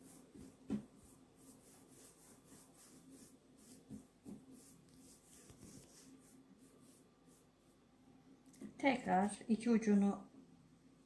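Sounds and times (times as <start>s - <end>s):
hands rubbing dough on table: 0.0s - 7.9s.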